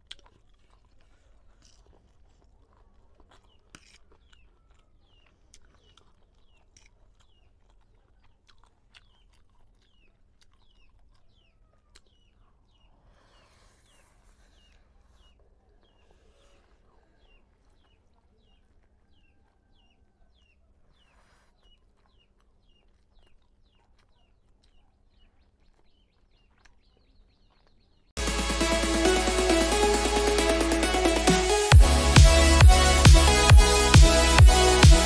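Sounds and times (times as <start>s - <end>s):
slurping and chewing noodles: 0.0s - 35.0s
loud electronic music: 28.2s - 35.0s.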